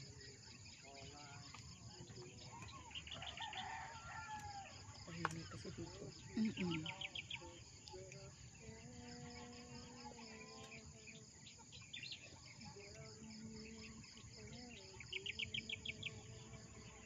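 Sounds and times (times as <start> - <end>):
faint distant singing: 0.0 - 17.0
insects buzzing: 0.0 - 17.0.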